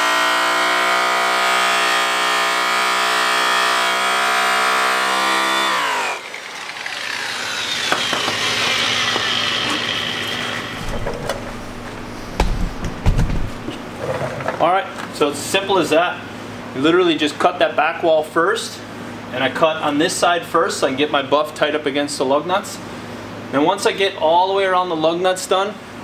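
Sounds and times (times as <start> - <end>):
electric buffer polishing metal: 0.0 - 12.7
clicks and thumps: 10.7 - 14.6.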